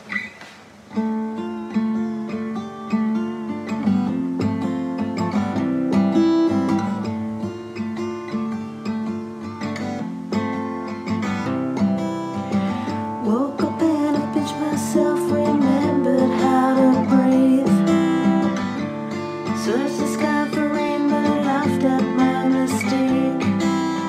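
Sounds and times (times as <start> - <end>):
acoustic guitar strumming: 0.0 - 24.0.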